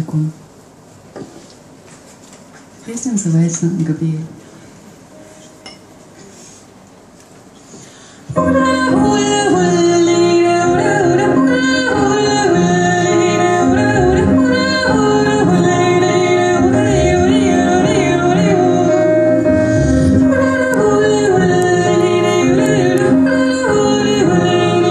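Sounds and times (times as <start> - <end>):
stage piano: 3.5 - 24.9
woman singing: 8.3 - 24.9
bowed cello: 13.6 - 18.7, 19.5 - 20.5.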